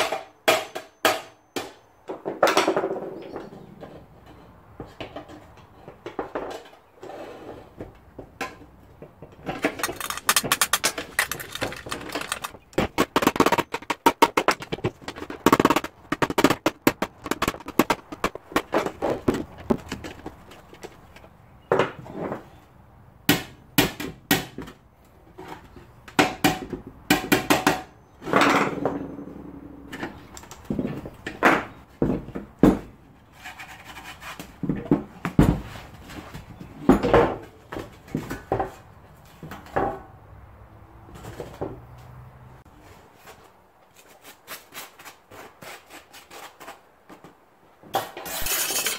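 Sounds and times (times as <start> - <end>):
pliers clicking on metal: 9.6 - 12.8.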